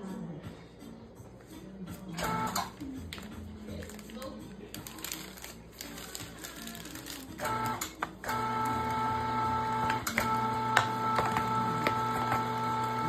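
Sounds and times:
meat grinder motor humming: 0:07.4 - 0:13.0.

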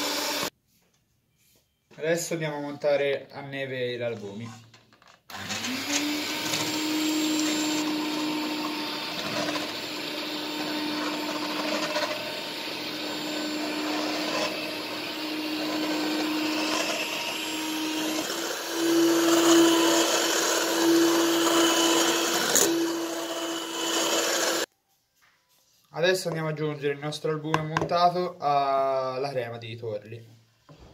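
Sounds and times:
electric mixer motor whine: 0:00.0 - 0:00.5, 0:05.3 - 0:24.7.

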